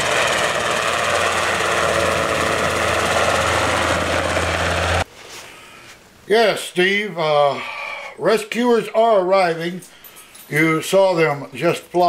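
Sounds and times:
helicopter rotor drone: 0.0 - 5.0.

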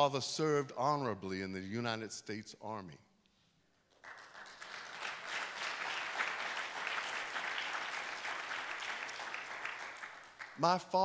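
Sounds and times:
crowd applauding: 3.9 - 11.0.

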